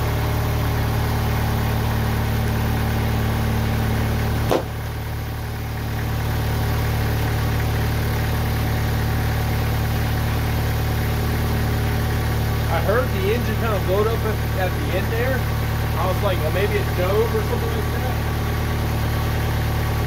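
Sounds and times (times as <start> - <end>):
sawmill engine running: 0.0 - 20.0
sharp knock: 4.5 - 4.8.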